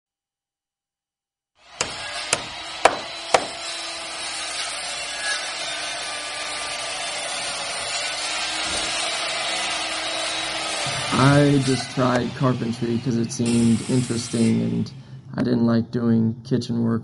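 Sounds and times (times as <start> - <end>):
knocks on wood: 2.4 - 3.6.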